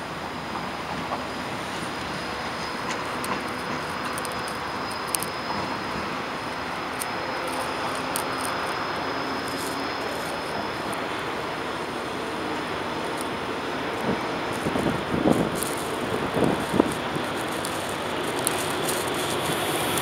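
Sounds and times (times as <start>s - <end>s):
freight train rolling slowly: 0.0s - 20.0s
faint clicks: 2.4s - 5.7s, 13.0s - 20.0s.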